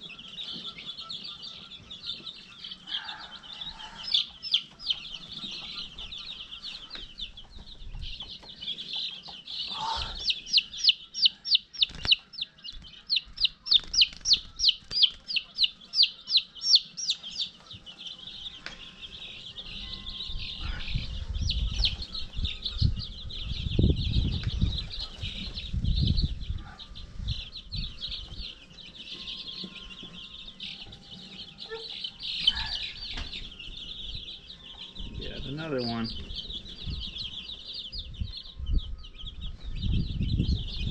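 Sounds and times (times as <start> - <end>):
chicks peeping: 0.0 - 40.9
chick distress peeps: 0.1 - 7.1, 9.5 - 18.0, 30.8 - 33.6.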